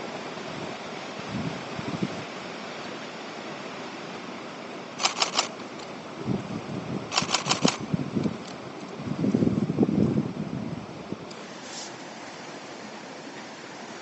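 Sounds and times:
river water rushing: 0.0 - 14.0
wind buffeting microphone: 0.5 - 2.3, 6.1 - 11.3
camera shutter clicks: 5.0 - 5.6, 7.1 - 7.8.

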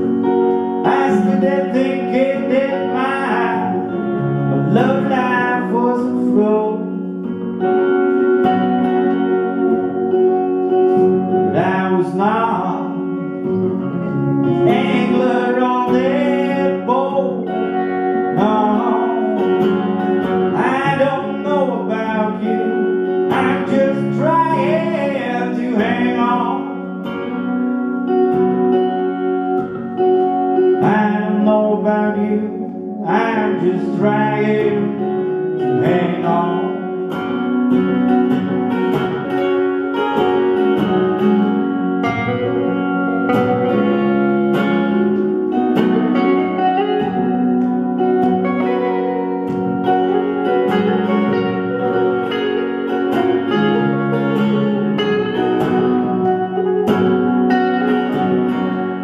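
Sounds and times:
electric guitars playing: 0.0 - 59.0
man singing: 0.7 - 7.4, 11.3 - 13.6, 14.4 - 27.0, 30.7 - 37.2.

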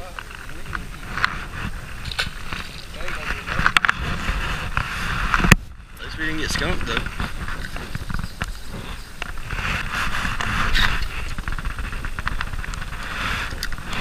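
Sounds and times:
handling knocks and rustles: 0.0 - 5.6
wind buffeting microphone: 0.0 - 14.0.

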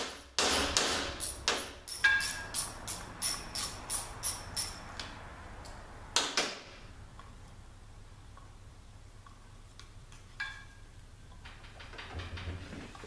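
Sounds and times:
ratchet wrench clicking: 1.2 - 5.1.

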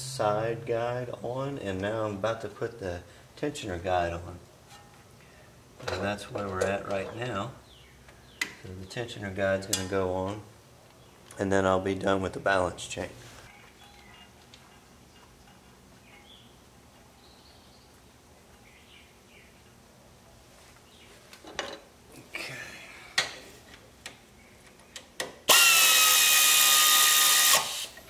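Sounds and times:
light clicks and knocks of parts: 5.8 - 7.4
power drill spinning: 25.5 - 28.0.

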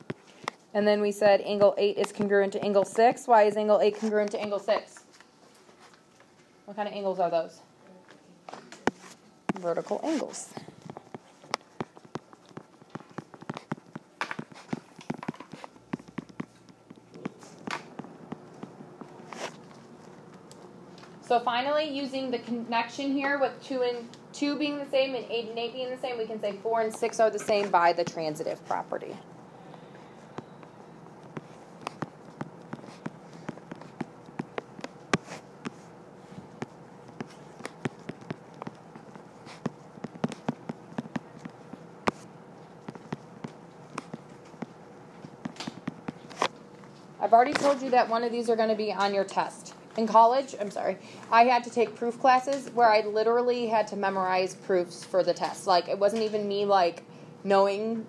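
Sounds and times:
stylus scratching: 8.9 - 20.4, 30.3 - 46.6
stylus tapping on tablet screen: 30.4 - 44.8.

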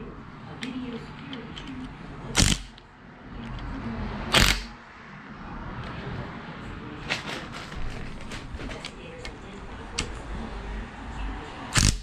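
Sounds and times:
cordless impact gun bursts: 2.4 - 2.7, 4.3 - 4.7, 11.8 - 12.0.

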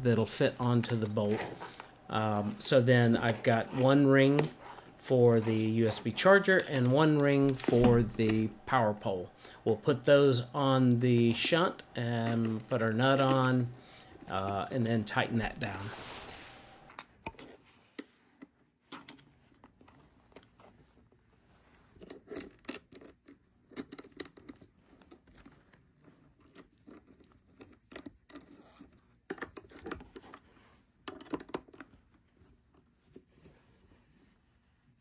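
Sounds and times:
hands handling wires: 0.0 - 21.2.

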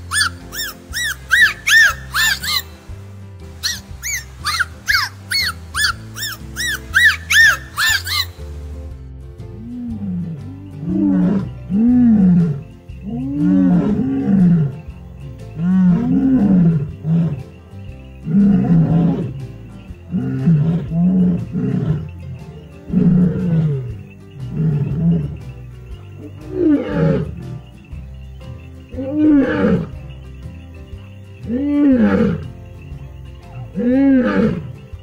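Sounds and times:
seal calling: 0.0 - 2.8, 3.6 - 8.4.

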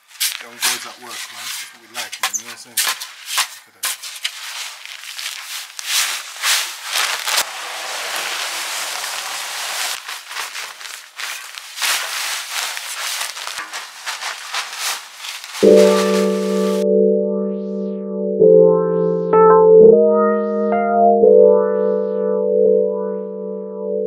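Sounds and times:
shovel scraping sand and cement: 0.0 - 16.8.

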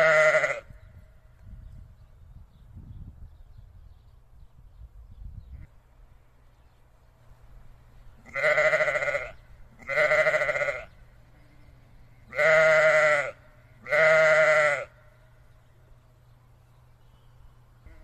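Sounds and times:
sheep bleating: 0.0 - 0.7, 8.2 - 15.0.

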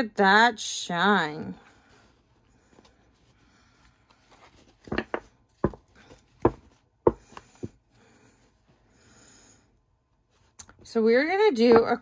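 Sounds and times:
cards tapping and knocking: 4.5 - 7.8.

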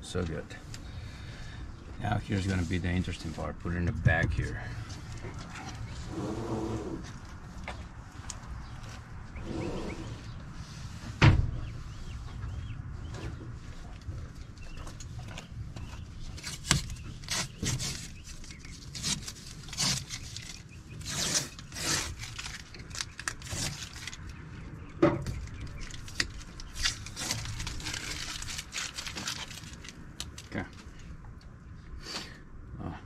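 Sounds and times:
plastic parts clicking and scraping: 14.9 - 24.3, 25.2 - 31.1.

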